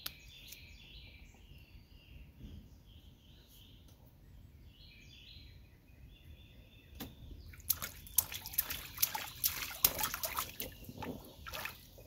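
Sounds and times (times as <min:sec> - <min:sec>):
faint birds chirping: 0:00.0 - 0:12.0
hands splashing water: 0:07.5 - 0:12.0.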